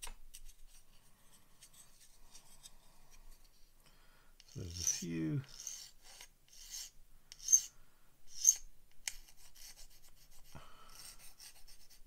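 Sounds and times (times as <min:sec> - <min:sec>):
metal file scraping plastic: 0:04.4 - 0:07.7, 0:08.3 - 0:09.8.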